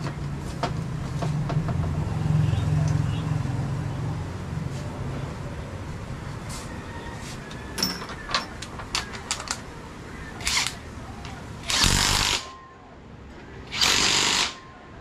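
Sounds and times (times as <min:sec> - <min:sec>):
metal tools clinking: 0:07.8 - 0:09.6
workshop tool burst: 0:11.6 - 0:12.6.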